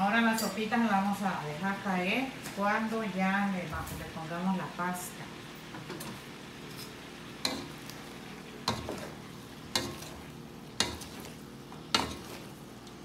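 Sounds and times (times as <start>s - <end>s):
stirring food in a pot: 5.8s - 13.0s
utensils knocking against pot: 7.4s - 7.8s, 8.6s - 10.2s, 10.8s - 11.3s, 11.9s - 12.4s.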